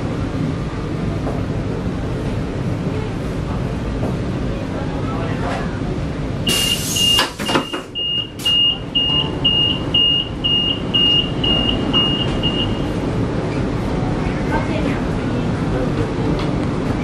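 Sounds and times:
low train hum: 0:00.0 - 0:17.0
train door opening clicks: 0:06.5 - 0:09.2
high-pitched warning beep: 0:06.5 - 0:13.0.

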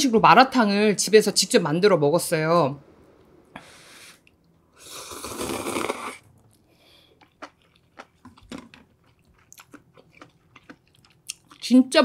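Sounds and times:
slurping noodles: 0:04.0 - 0:06.4
soft wet chewing: 0:06.4 - 0:11.7.

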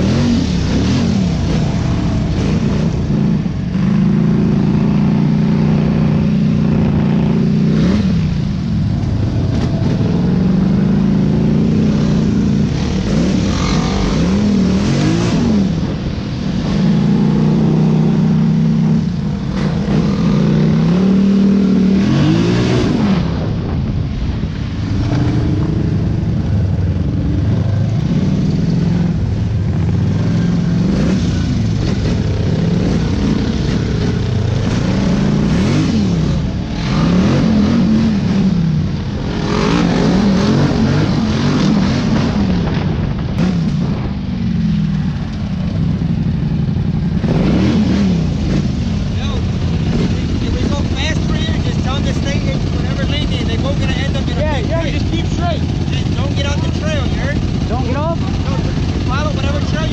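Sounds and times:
atv engine revving: 0:00.0 - 0:59.9.

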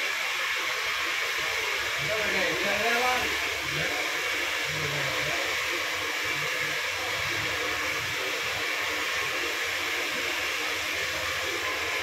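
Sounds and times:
electric blower hissing: 0:01.8 - 0:12.0.

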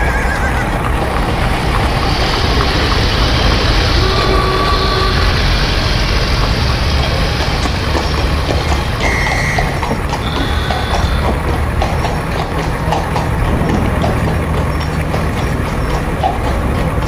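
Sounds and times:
clops on pavement: 0:00.0 - 0:17.0
traffic rumble: 0:00.0 - 0:17.0
short high tone: 0:03.5 - 0:06.6.

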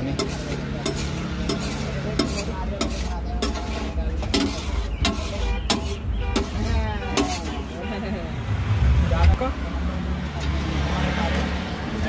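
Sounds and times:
metal spatula scraping iron griddle: 0:00.0 - 0:08.1.

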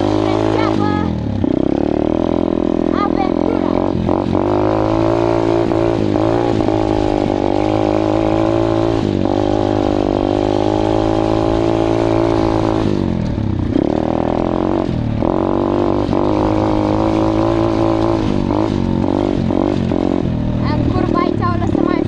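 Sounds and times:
motorbike engine revving: 0:00.0 - 0:22.0.

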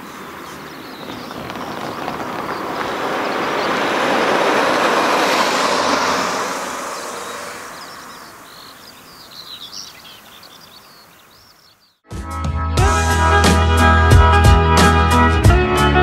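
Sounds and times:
car passing by: 0:00.0 - 0:10.5
birds chirping faintly: 0:00.0 - 0:12.0.

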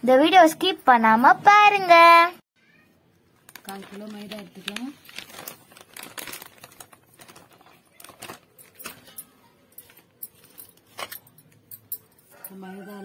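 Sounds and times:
plastic packet crinkling: 0:03.4 - 0:09.3.

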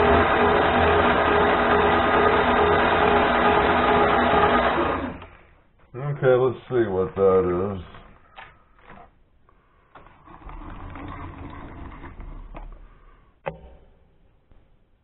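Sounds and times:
lathe carriage whirring: 0:00.0 - 0:05.3.

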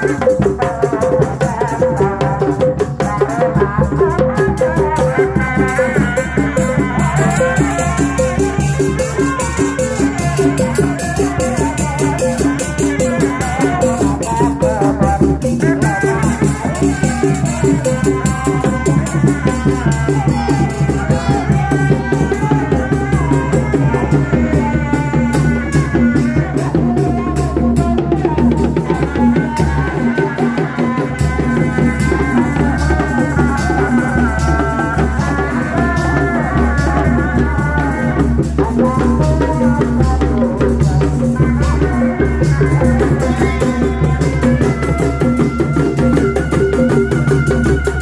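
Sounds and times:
large drum beaten with mallets: 0:00.0 - 0:48.0.

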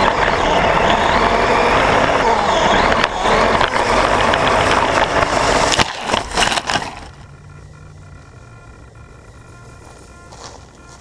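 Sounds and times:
faint hum with thin whine: 0:00.0 - 0:11.0
rc truck rumbling over dirt: 0:00.0 - 0:11.0
rc truck knocks: 0:02.6 - 0:07.3.

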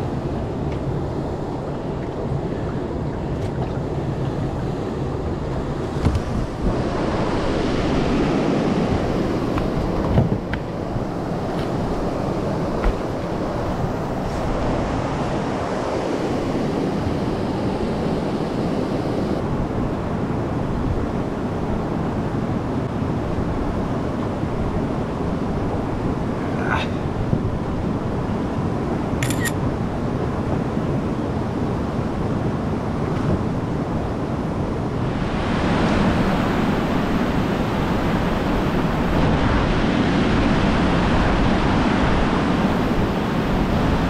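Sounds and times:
water noise: 0:00.0 - 0:21.8, 0:31.4 - 0:44.0
wind rushing over microphone: 0:00.0 - 0:44.0.

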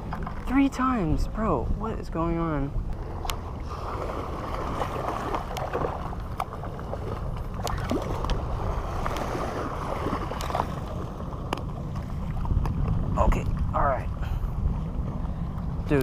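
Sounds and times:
wind rumble on microphone: 0:00.0 - 0:16.0
waves washing on rocks: 0:03.2 - 0:06.4.

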